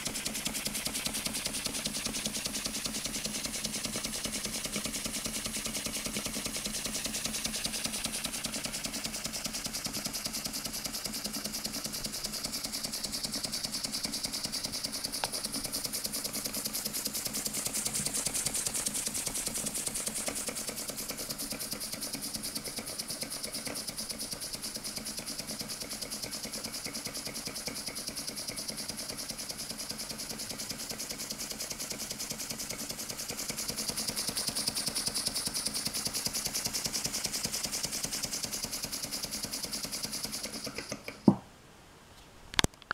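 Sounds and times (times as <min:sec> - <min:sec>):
steam engine exhaust puffs: 0:00.0 - 0:41.4.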